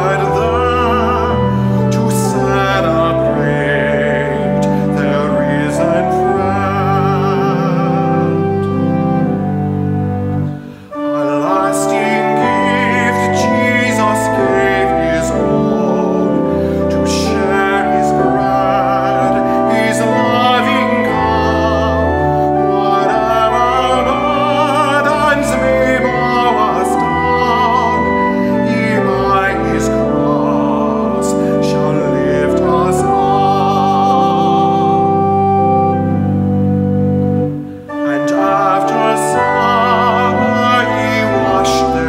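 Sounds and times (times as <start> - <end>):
instrumental accompaniment: 0.0 - 42.0
person singing a hymn: 0.0 - 42.0.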